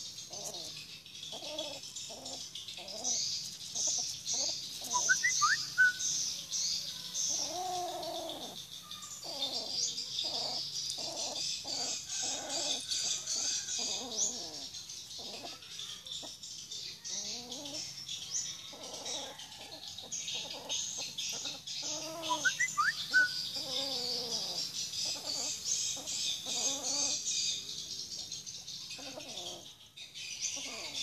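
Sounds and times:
high-pitched hiss: 3.2 - 10.1.

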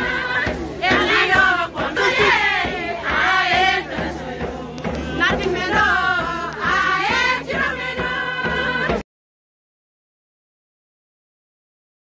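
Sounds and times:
crowd singing a chant: 0.0 - 9.0.

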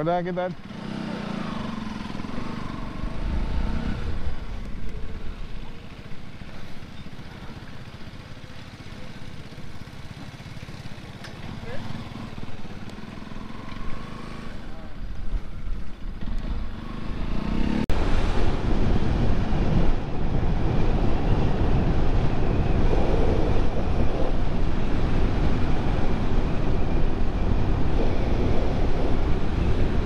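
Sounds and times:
motorcycle engine running: 0.0 - 30.0
wind rushing over microphone: 1.2 - 5.7, 12.3 - 30.0.

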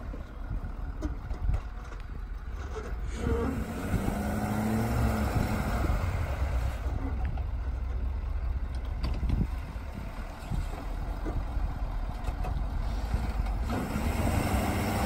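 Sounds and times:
diesel truck engine running: 0.0 - 15.0.

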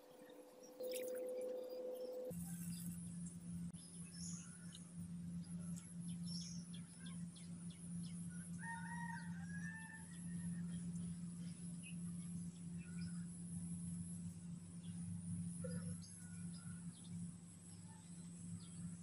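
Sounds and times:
steady low hum: 0.0 - 19.0
distant rooster crowing: 8.4 - 10.8.

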